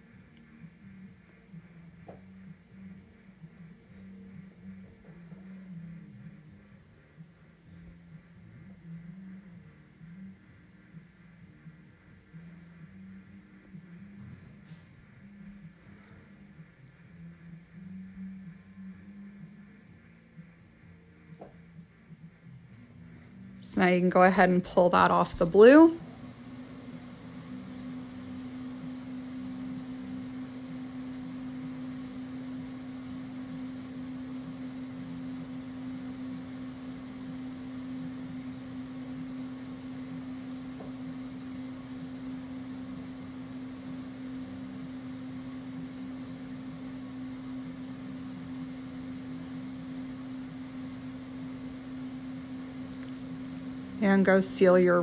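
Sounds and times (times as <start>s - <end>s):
space heater humming: 0.0s - 55.0s
fan hiss: 21.8s - 55.0s.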